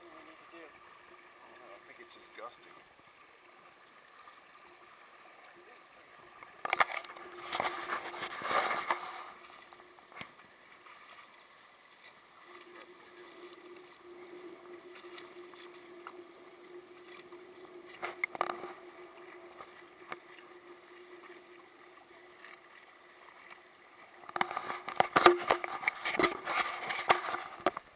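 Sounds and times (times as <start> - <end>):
water washing along hull: 0.0 - 27.9
steady hum: 6.2 - 11.3, 12.2 - 27.3.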